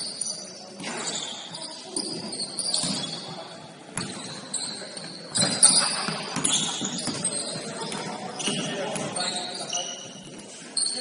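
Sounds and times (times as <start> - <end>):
sneakers squeaking on court: 0.0 - 11.0
basketball bouncing: 4.0 - 4.2, 5.4 - 9.2.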